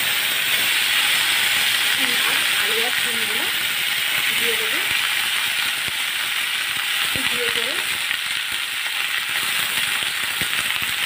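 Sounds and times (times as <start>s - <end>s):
vegetables sizzling in hot oil: 0.0s - 11.0s.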